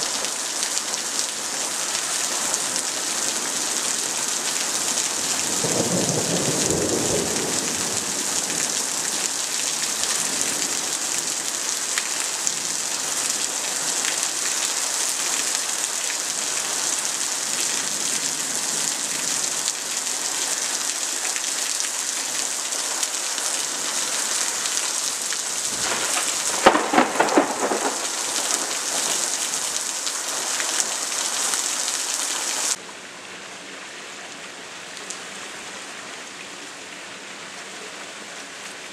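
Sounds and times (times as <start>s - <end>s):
heavy rain pouring: 0.0s - 33.3s
thunder rumbling: 5.4s - 8.8s, 25.6s - 29.7s
crackling peal of thunder: 5.4s - 8.9s, 25.6s - 29.7s.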